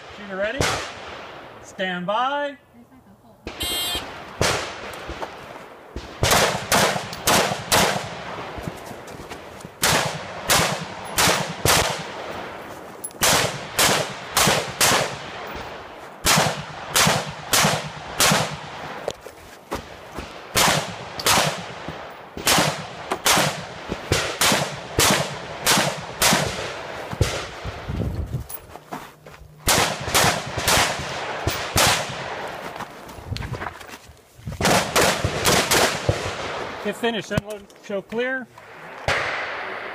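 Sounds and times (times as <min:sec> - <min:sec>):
rifle shots echoing: 0:00.0 - 0:01.6, 0:03.5 - 0:08.7, 0:09.8 - 0:12.6, 0:13.2 - 0:19.0, 0:20.2 - 0:27.8, 0:29.6 - 0:32.6, 0:34.6 - 0:37.3, 0:38.6 - 0:39.9.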